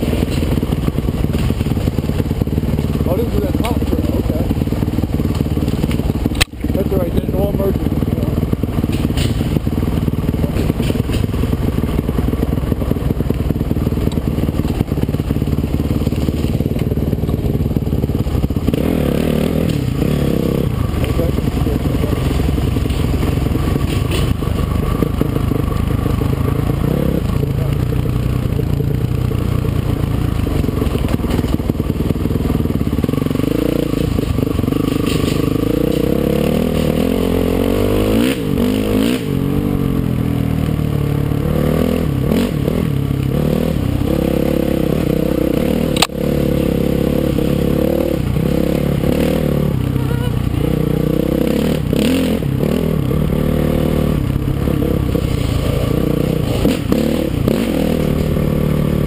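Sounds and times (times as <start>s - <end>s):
dirt bike engine revving: 0.0s - 59.0s
stones clattering under tyres: 8.7s - 11.6s, 22.1s - 26.4s, 30.1s - 32.3s, 32.9s - 37.0s.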